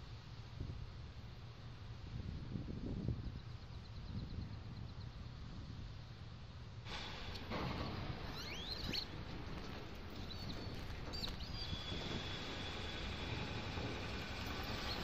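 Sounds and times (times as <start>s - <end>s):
low wind-like rumble: 0.0s - 15.0s
squeaky bird chirps: 8.2s - 9.2s, 9.9s - 12.1s.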